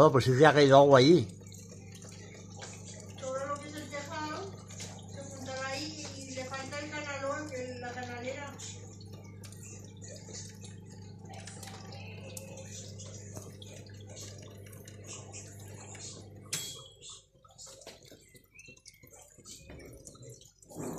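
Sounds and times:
rain dripping on wet concrete: 0:00.0 - 0:15.2
steady low hum: 0:00.3 - 0:20.9.

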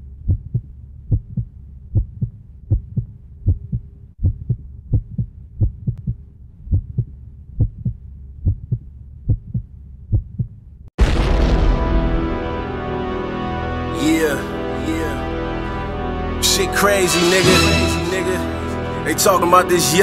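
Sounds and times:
heartbeat thumps: 0:00.2 - 0:10.6.

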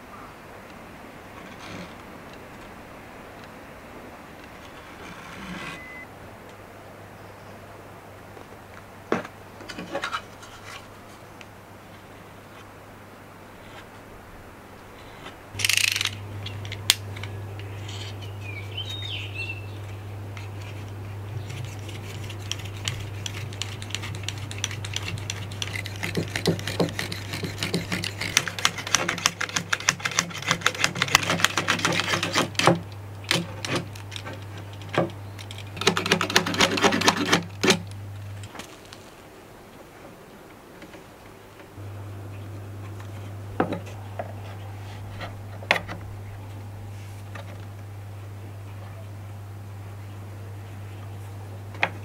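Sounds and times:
steady low hum: 0:00.0 - 0:52.0
knife scraping wood: 0:01.4 - 0:02.1, 0:04.7 - 0:05.8, 0:17.6 - 0:19.1, 0:20.4 - 0:37.8.

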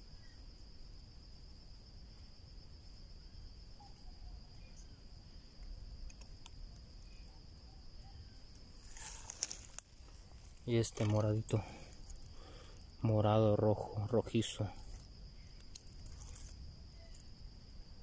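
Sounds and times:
faint background hum: 0:00.0 - 0:18.0
insect trilling: 0:00.0 - 0:18.0
leaves rustling: 0:08.5 - 0:13.1, 0:14.8 - 0:17.3.

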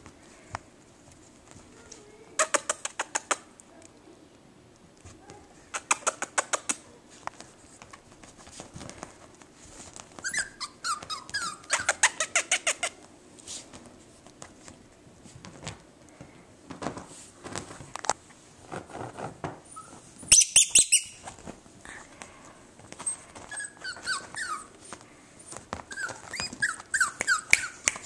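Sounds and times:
puppy yipping and squeaking: 0:10.2 - 0:13.0, 0:19.7 - 0:21.3, 0:23.0 - 0:28.0.

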